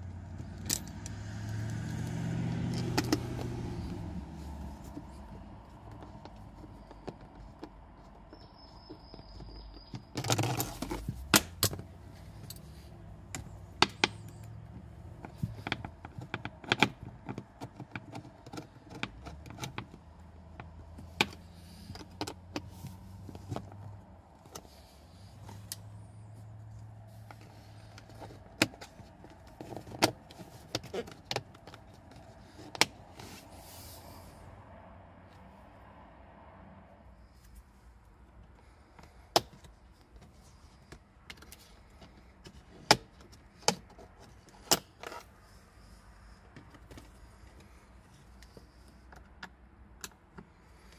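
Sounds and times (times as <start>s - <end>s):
plastic trim clicks and scraping: 0.4s - 4.0s, 4.6s - 24.8s, 27.2s - 33.5s, 39.0s - 45.3s.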